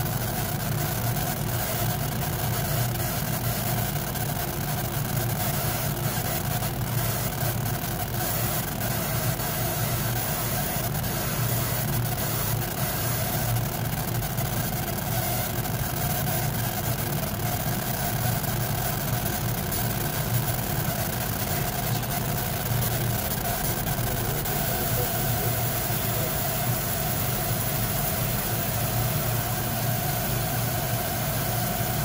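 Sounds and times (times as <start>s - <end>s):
machine fan hum: 2.2s - 32.0s.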